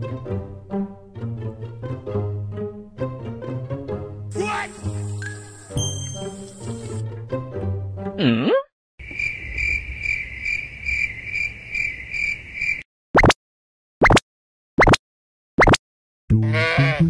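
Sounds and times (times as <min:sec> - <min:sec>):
cricket trill: 0:09.0 - 0:12.8.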